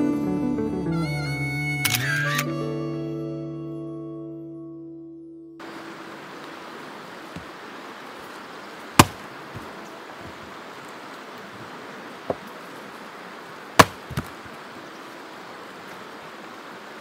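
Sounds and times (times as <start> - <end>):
axe chopping wood: 9.0 - 10.4, 13.8 - 14.5.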